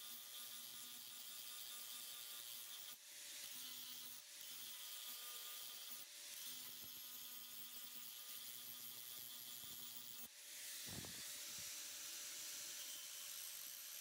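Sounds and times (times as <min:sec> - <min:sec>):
angle grinder grinding steel: 0:00.0 - 0:14.0.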